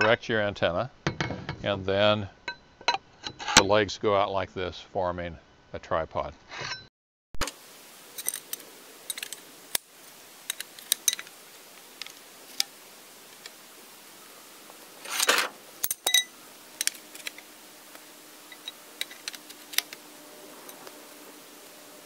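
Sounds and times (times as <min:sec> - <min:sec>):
metallic clatter: 0:08.1 - 0:09.5, 0:15.0 - 0:17.5, 0:18.5 - 0:20.0
metal mast sections clinking: 0:08.1 - 0:09.8, 0:10.4 - 0:11.4, 0:15.0 - 0:17.5, 0:18.4 - 0:20.0.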